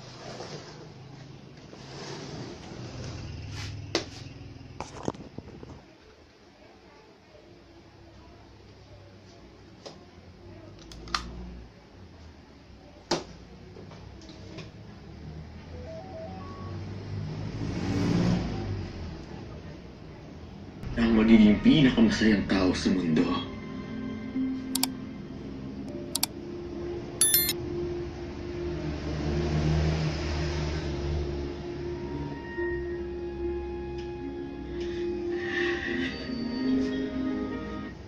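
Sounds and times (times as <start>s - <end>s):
click: 27.2s - 27.6s
short high beep: 27.2s - 27.6s.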